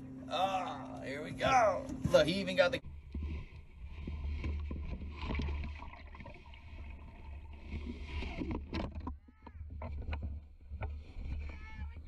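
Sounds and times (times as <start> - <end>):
water sloshing and splashing: 2.8 - 12.0.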